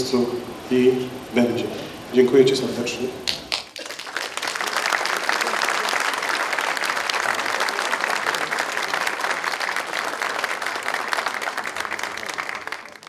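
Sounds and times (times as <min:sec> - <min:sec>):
audience applause: 0:03.3 - 0:13.0.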